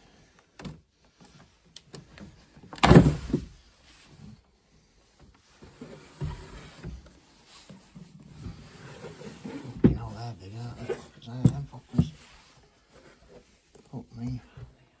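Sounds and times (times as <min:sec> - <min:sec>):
soft knocks and handling: 0:05.1 - 0:14.8
wooden drawer scraping open: 0:05.6 - 0:07.2, 0:07.8 - 0:12.3.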